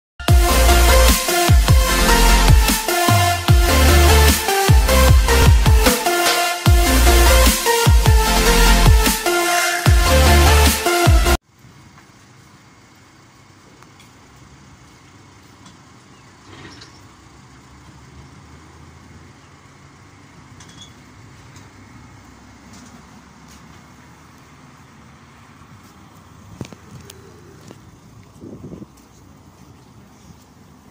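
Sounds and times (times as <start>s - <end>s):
street traffic noise: 0.2s - 30.9s.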